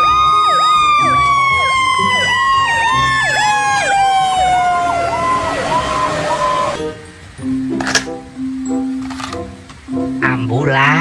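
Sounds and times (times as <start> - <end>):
siren yelping: 0.0 - 6.8
siren long falling tone: 0.0 - 6.9.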